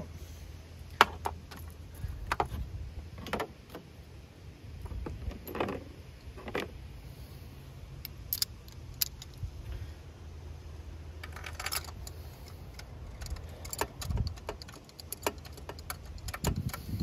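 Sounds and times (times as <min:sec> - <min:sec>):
steady low hum: 0:00.0 - 0:17.0
hand tools clicking and scraping: 0:11.2 - 0:17.0.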